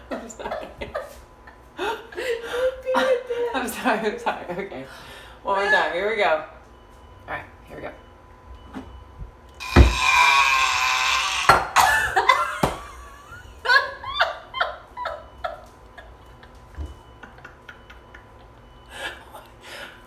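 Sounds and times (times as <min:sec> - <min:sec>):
laughter: 0:00.0 - 0:03.6, 0:11.8 - 0:19.5.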